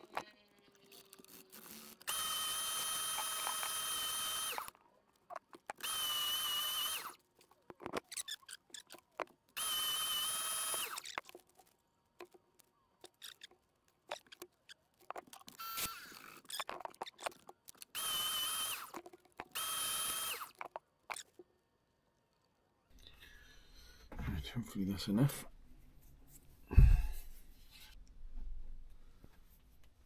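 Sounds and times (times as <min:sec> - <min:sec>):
power tool whining: 0:00.8 - 0:04.8, 0:05.7 - 0:07.2, 0:09.6 - 0:11.3, 0:15.5 - 0:21.2
handling clicks and taps: 0:20.5 - 0:21.5.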